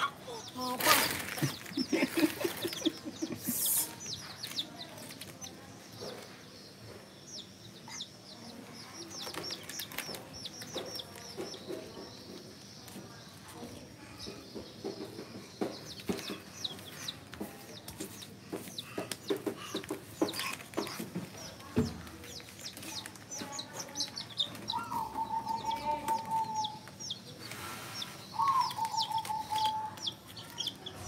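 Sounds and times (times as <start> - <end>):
chicks peeping: 0.0 - 31.0.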